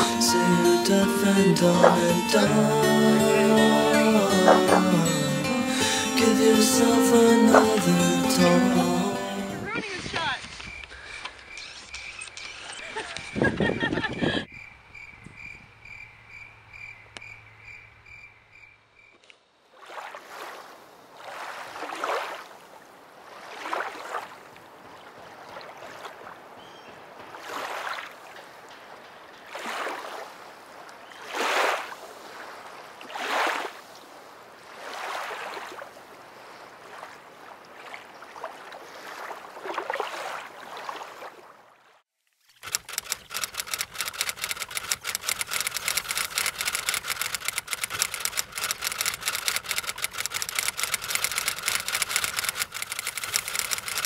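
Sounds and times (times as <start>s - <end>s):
faint pulsing chirp: 14.5s - 19.2s
paddle splashing through water: 19.6s - 54.0s
rapid even ticking: 42.6s - 54.0s.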